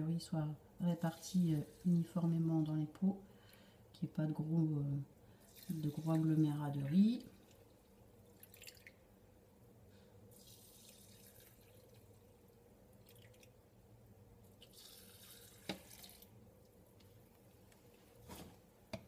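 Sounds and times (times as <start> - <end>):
faint trickle of pouring liquid: 5.3 - 9.0, 10.3 - 13.6, 14.4 - 16.8.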